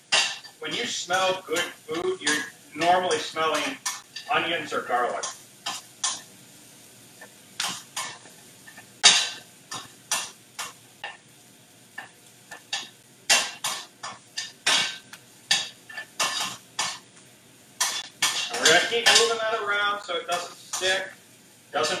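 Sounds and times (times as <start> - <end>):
faint sizzle: 0.0 - 22.0
utensil clinking and scraping pan: 17.8 - 19.4.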